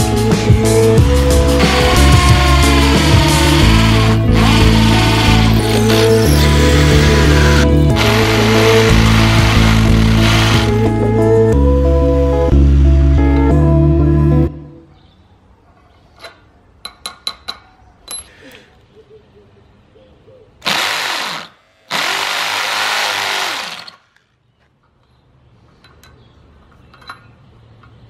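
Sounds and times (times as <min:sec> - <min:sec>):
electric drill boring into concrete: 0:01.5 - 0:10.9, 0:20.6 - 0:24.0.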